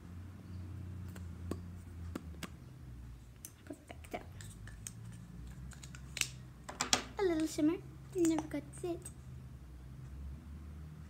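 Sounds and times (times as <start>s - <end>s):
makeup items clicking and tapping: 4.4s - 7.6s, 8.2s - 8.6s.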